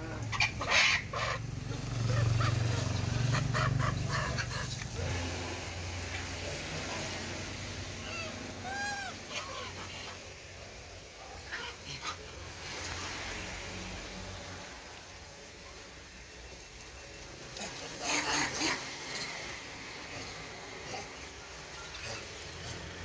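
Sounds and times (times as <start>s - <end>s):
animal call: 0.0s - 5.5s, 8.0s - 10.3s.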